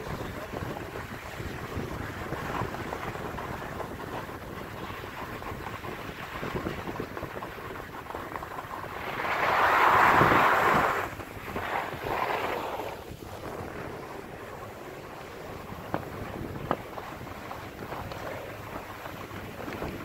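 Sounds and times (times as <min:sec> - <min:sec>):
wind buffeting the microphone: 0:00.0 - 0:20.0
skis hissing over snow: 0:08.1 - 0:20.0.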